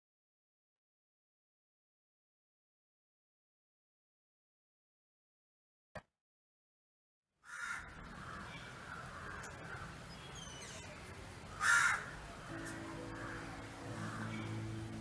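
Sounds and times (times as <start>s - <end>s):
birds calling: 7.5s - 15.0s.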